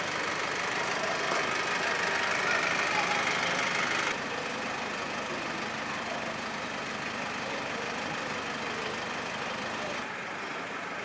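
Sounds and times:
traffic hum: 0.0s - 11.0s
vehicle engine running: 0.0s - 11.0s.

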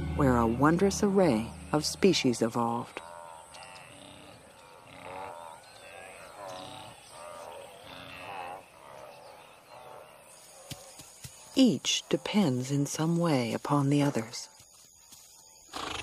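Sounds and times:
wildebeest herd calling: 0.0s - 10.8s.

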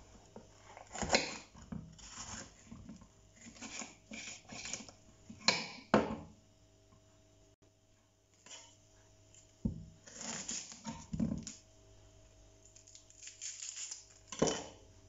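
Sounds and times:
papery vegetable skin rustling: 10.0s - 11.6s, 12.6s - 14.4s.

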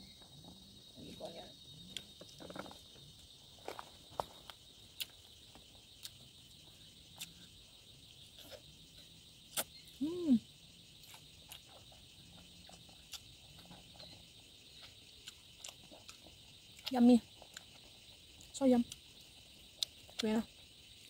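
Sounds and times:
crickets droning: 0.0s - 21.0s
smacking and chewing clicks: 14.8s - 19.0s.

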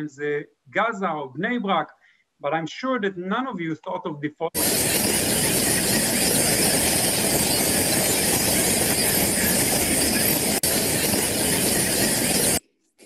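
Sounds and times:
fruit bat colony calling: 4.6s - 12.6s.

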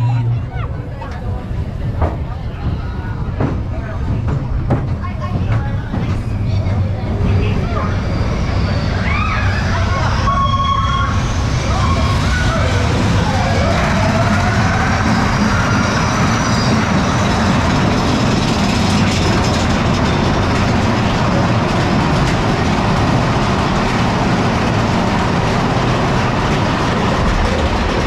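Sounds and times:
rumble of wheels on track: 0.0s - 28.0s
faint high squeal: 7.3s - 12.8s.

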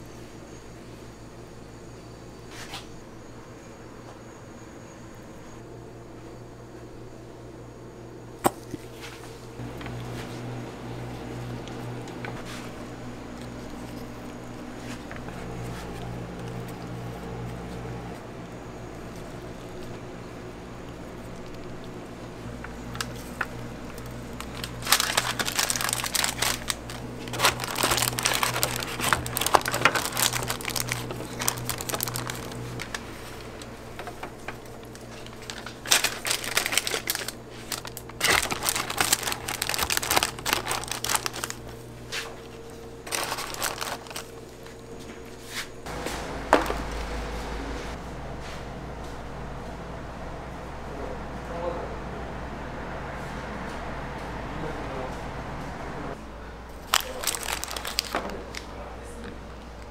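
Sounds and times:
steady low hum: 0.0s - 59.9s
paper wrapper crinkling: 9.6s - 18.2s, 18.8s - 45.0s, 56.7s - 58.8s.

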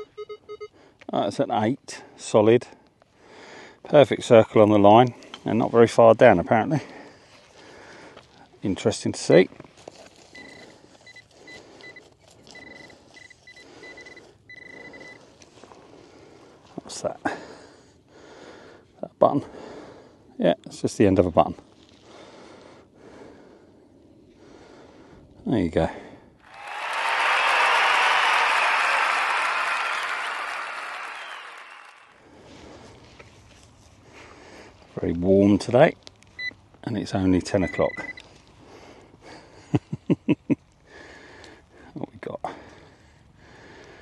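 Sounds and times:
metal detector pinpointer beeping: 0.0s - 0.8s, 10.3s - 15.2s, 36.4s - 36.6s, 37.6s - 38.2s
applause: 26.4s - 32.2s.

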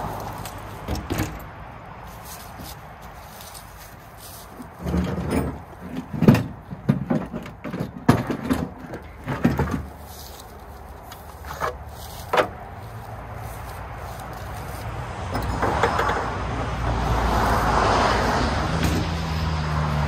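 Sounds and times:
tools clunking in truck bed: 0.8s - 1.6s, 4.5s - 10.5s, 11.2s - 12.6s, 15.3s - 16.6s.

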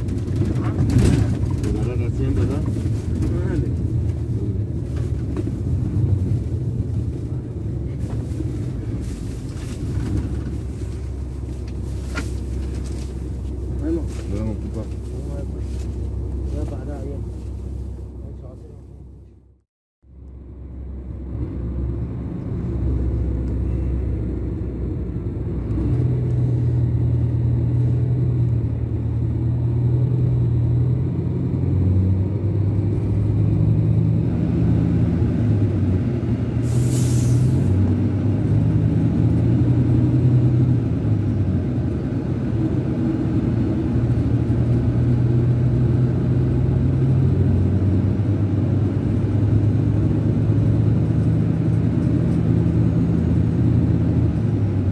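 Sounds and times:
bus diesel engine droning: 0.0s - 54.9s
loud air hiss: 36.6s - 37.7s.

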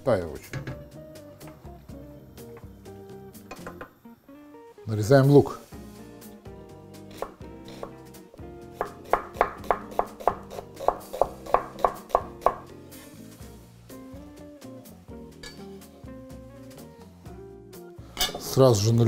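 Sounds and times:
light background music: 0.0s - 19.0s
knife chopping on wooden board: 7.1s - 8.0s, 8.8s - 12.7s.

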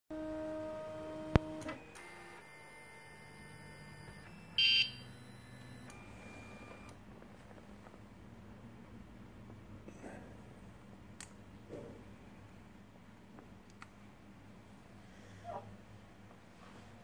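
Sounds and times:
thin electrical whine: 0.3s - 8.0s
short high beep: 4.6s - 6.5s.

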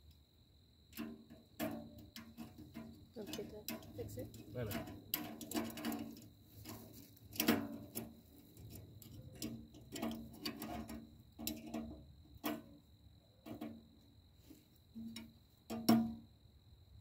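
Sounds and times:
metal clank: 0.9s - 12.8s, 15.0s - 16.2s.

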